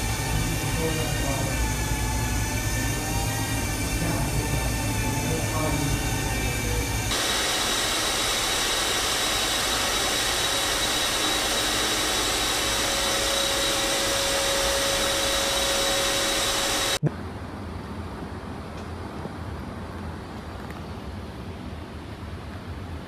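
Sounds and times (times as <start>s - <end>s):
thin high whine: 0.0s - 17.1s.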